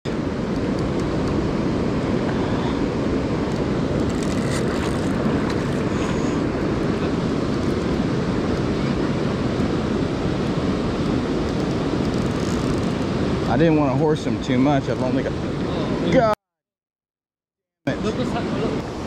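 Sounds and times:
rushing river water: 0.1s - 16.3s, 17.9s - 19.0s
wind on microphone: 0.1s - 16.4s.

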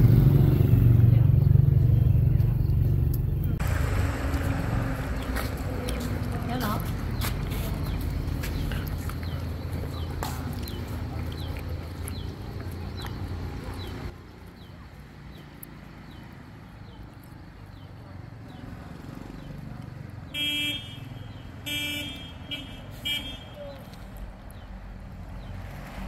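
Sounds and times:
low rumble: 0.0s - 10.0s
vehicle horn honking: 20.3s - 23.7s.

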